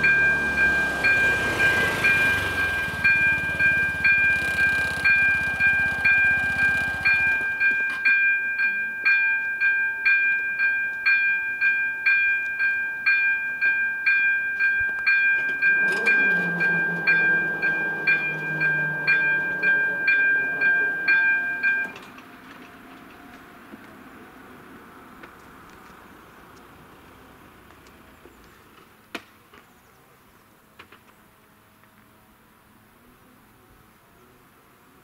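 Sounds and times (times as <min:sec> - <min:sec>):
crossing warning bell dings: 0:00.0 - 0:23.4
low hum: 0:15.6 - 0:22.0.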